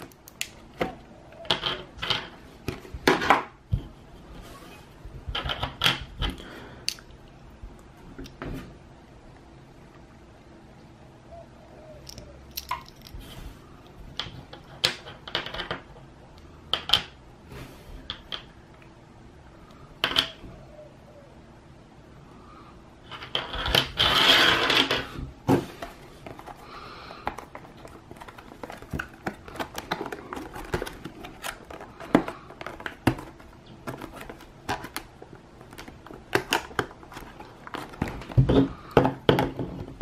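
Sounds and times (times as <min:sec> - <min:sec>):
packaging rustling and crinkling: 0:25.5 - 0:38.8
blister pack rattling: 0:27.3 - 0:38.3.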